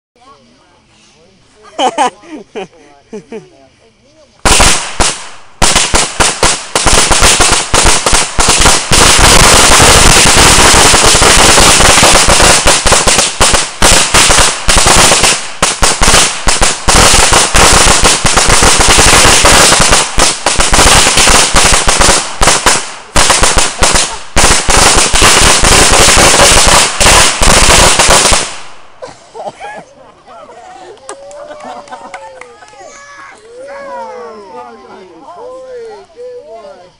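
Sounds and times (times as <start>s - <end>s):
fireworks bangs: 4.4s - 29.0s.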